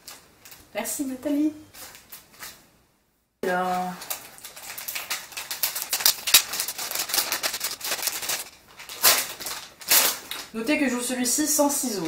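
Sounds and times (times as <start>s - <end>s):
paper wrapping torn open by hand: 4.0s - 10.5s.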